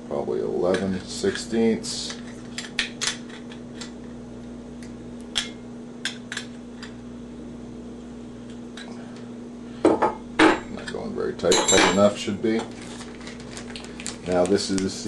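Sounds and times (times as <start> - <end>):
steady low hum: 0.0 - 15.0
fittings in plastic packets clicking: 12.7 - 15.0.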